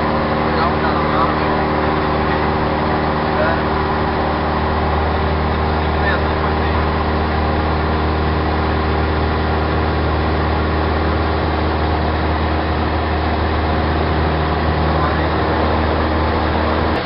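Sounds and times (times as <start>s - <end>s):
light aircraft engine drone in cabin: 0.0s - 17.0s.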